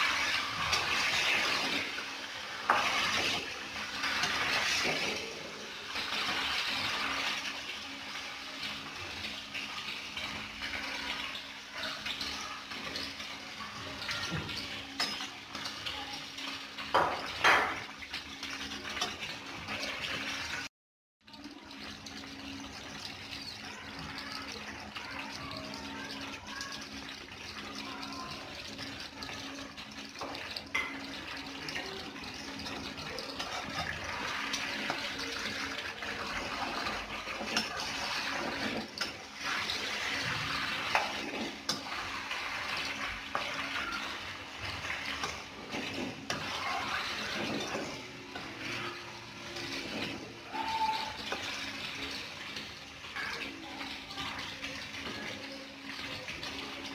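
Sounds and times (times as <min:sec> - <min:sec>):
food sizzling in wok: 0:00.0 - 0:20.7, 0:21.4 - 0:56.9.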